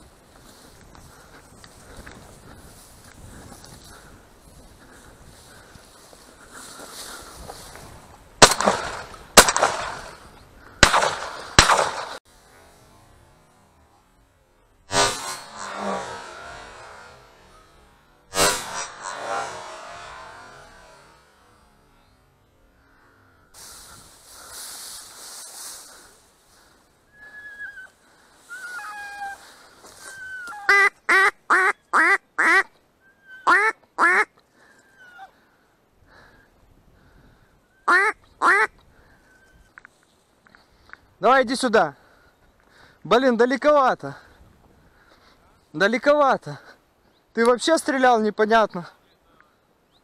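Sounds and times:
shotgun shots with echo: 0:08.4 - 0:10.1, 0:10.8 - 0:12.2
rustling hiss: 0:14.8 - 0:30.7.

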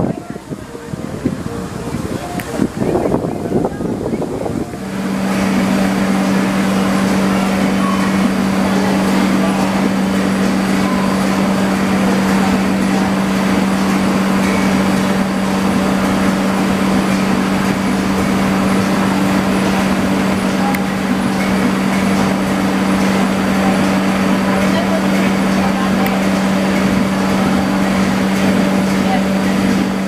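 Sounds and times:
steady engine hum: 0:00.0 - 0:30.0
faint high tone: 0:07.3 - 0:09.7, 0:10.7 - 0:13.2.

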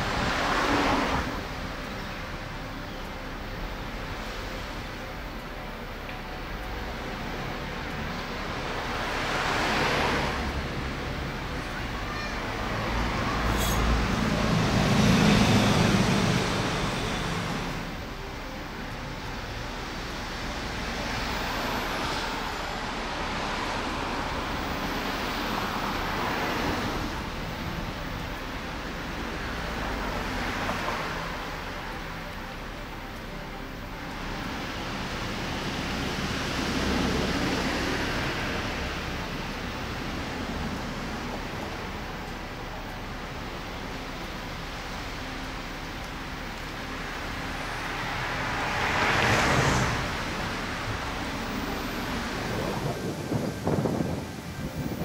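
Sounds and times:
outdoor background noise: 0:00.0 - 0:55.0
road vehicles passing: 0:00.0 - 0:55.0
steady traffic hiss: 0:00.0 - 0:55.0
vehicle driving past: 0:12.8 - 0:18.0, 0:47.3 - 0:54.0.

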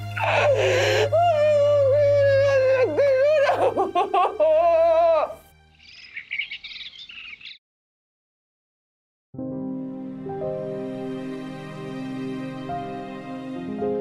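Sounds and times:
sad melody over low drone: 0:00.0 - 0:05.9, 0:09.4 - 0:14.0
birdsong chirps: 0:05.6 - 0:07.6.

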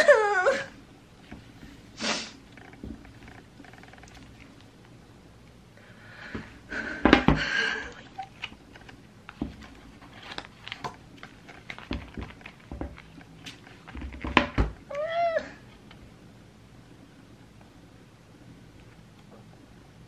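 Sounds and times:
book pages riffled and turned: 0:08.0 - 0:14.6.

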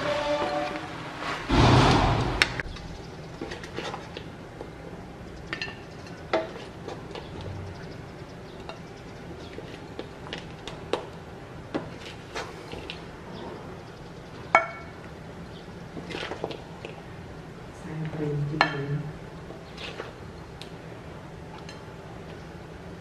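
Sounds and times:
knocks and clinks on plate: 0:14.6 - 0:14.9, 0:18.6 - 0:18.9.

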